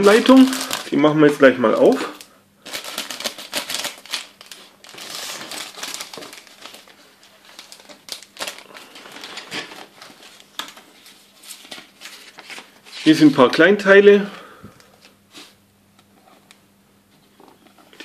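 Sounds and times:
plastic bag crinkling: 0.0 - 13.2.

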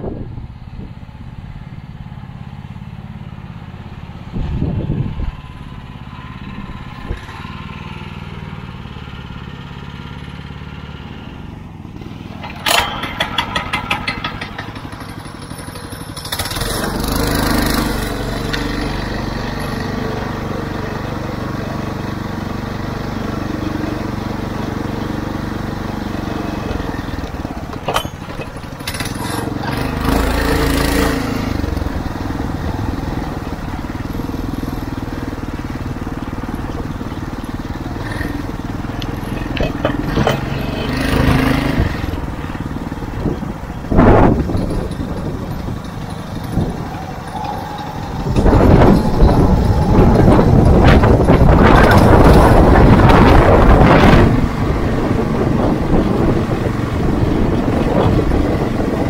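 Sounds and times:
gusty wind on microphone: 0.0 - 1.1, 4.3 - 5.9, 40.9 - 59.0
small engine running: 2.0 - 59.0.

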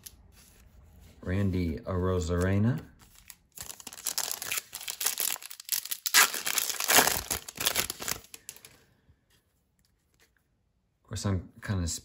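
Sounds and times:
card pack wrapper tearing: 2.3 - 8.7.

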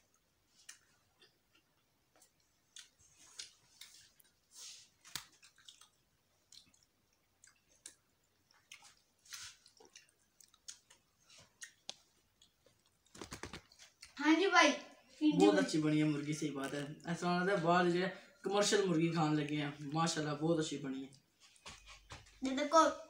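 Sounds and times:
chewing and mouth smacks: 0.1 - 14.2.

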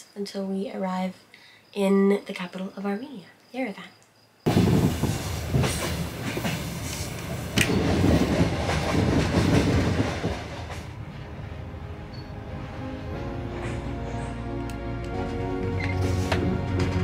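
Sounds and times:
train wheels rumbling: 4.5 - 17.0
wheels clacking over rail joints: 4.6 - 11.0.

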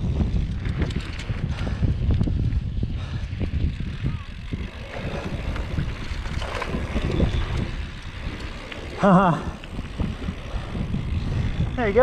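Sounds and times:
bike tyres rolling on dirt: 0.0 - 12.0
wind buffeting microphone: 0.0 - 12.0.

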